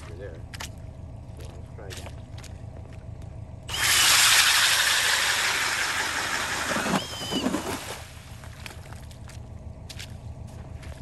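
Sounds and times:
ice auger grinding through ice: 3.7s - 8.0s.

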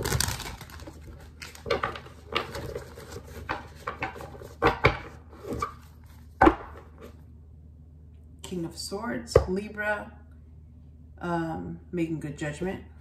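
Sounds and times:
cards being shuffled: 0.0s - 4.6s.

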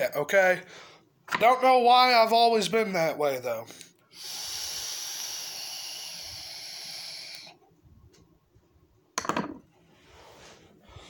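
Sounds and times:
airy hiss of vape drag: 4.1s - 7.6s.

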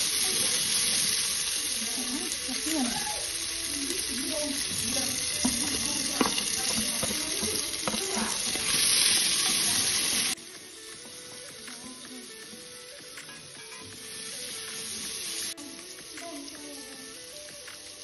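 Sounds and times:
vegetables sizzling in oil: 0.0s - 18.0s
spatula scraping a pot: 4.8s - 10.4s.

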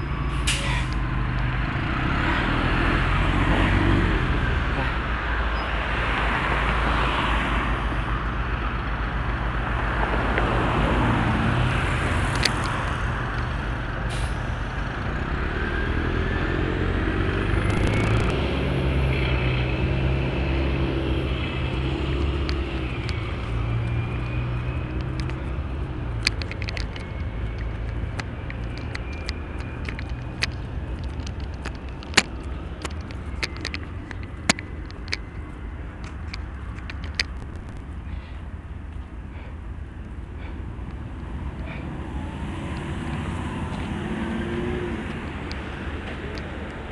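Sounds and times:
locomotive engine drone: 0.0s - 46.9s
road traffic noise: 0.0s - 46.9s
sharp clicks: 17.6s - 18.4s, 22.2s - 38.0s.

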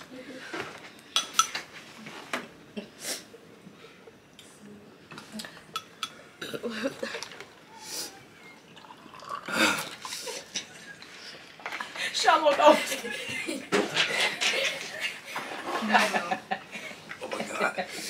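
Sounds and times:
cutlery and dishes clinking: 1.1s - 1.7s.

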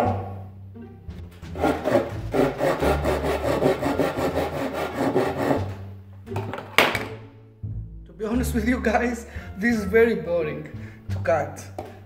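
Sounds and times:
hand saw cutting wood: 1.4s - 5.9s.

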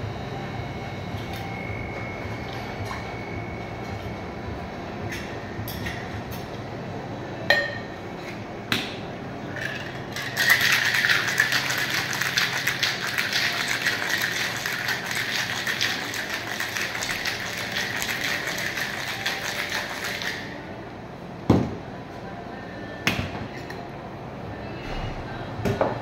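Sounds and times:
ice clinking in glass: 9.6s - 20.4s
ice rattling in cocktail shaker: 9.6s - 20.5s.

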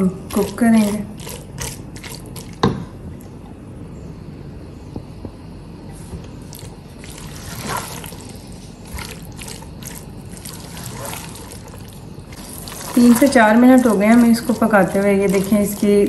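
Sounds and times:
spatula scraping sauce in a pot: 7.1s - 16.0s.

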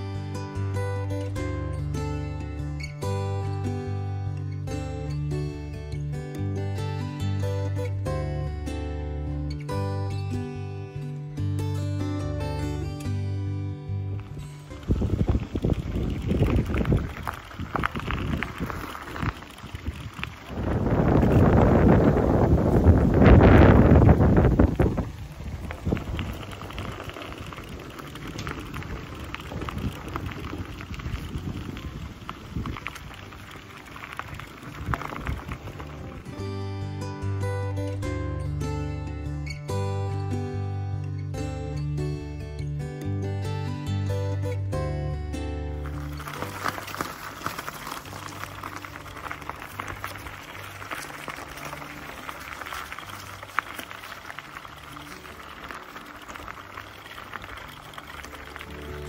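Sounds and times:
low wind rumble: 14.1s - 36.8s
footsteps crunching on gravel: 14.2s - 36.4s, 45.8s - 59.0s.

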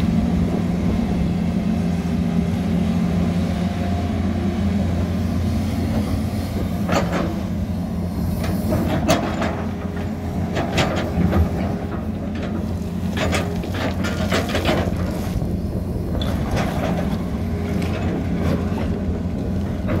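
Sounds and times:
excavator diesel engine running: 0.0s - 20.0s
bucket clanking and scraping rock: 10.6s - 15.5s.

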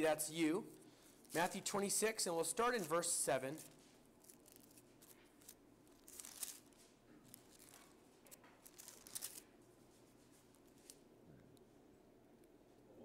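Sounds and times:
thin pages being turned: 2.7s - 9.5s.

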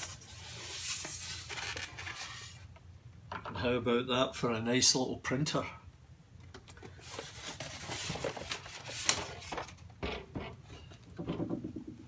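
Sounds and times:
styrofoam rubbing and scraping: 0.0s - 2.6s
small knocks: 10.0s - 12.0s.

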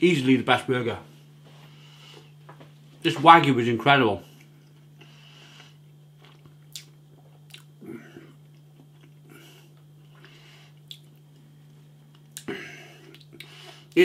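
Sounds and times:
steady low hum: 0.0s - 14.0s
person chewing food: 5.6s - 13.8s
wet mouth clicks: 6.3s - 7.7s, 10.8s - 11.2s.

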